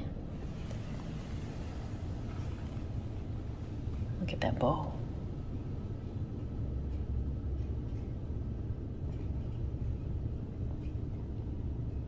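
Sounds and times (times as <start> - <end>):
low indoor rumble: 0.0 - 12.0.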